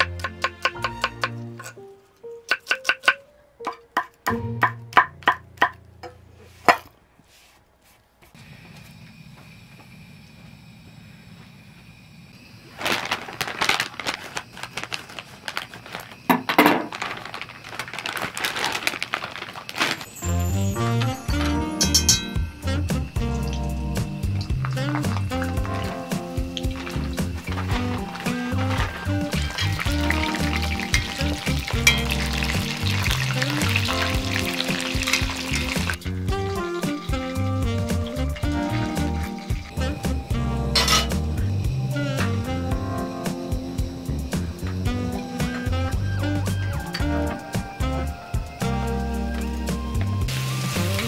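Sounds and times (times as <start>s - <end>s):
background music: 0.0s - 6.0s, 20.1s - 51.0s
plastic packaging crinkling: 12.7s - 20.6s, 24.6s - 36.1s
deep-frying sizzle: 18.8s - 51.0s
tongs stirring: 24.7s - 40.0s.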